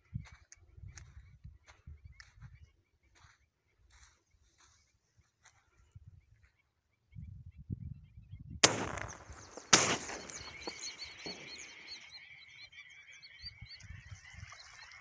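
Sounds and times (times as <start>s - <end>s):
shotgun shots: 8.6s - 12.1s
flock of waterfowl calling: 8.9s - 15.0s.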